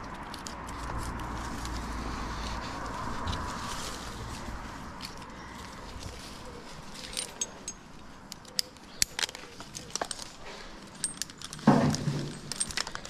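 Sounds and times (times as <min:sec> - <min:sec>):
rustling noise: 0:00.0 - 0:08.1
climbing hardware clinking: 0:06.7 - 0:13.0.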